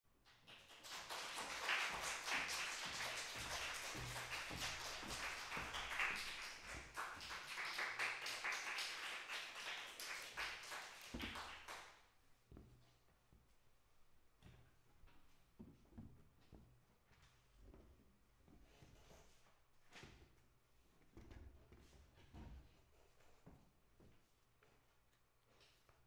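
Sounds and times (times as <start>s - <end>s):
audience applauding: 0.5s - 12.0s.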